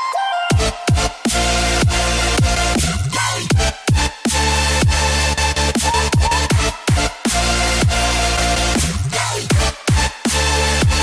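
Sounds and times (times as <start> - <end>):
electronic dance music: 0.0 - 11.0
deep bass notes sliding down: 5.0 - 8.9.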